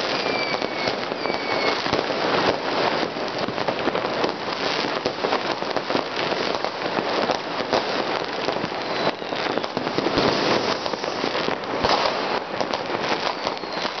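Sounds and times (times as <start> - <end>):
faint falling whistle: 0.0 - 1.8, 8.8 - 11.2, 13.2 - 14.0
fireworks crackling and banging: 0.0 - 14.0.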